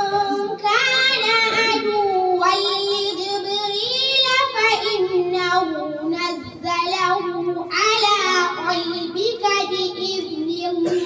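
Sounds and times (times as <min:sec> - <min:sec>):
girl chanting recitation: 0:00.0 - 0:11.0.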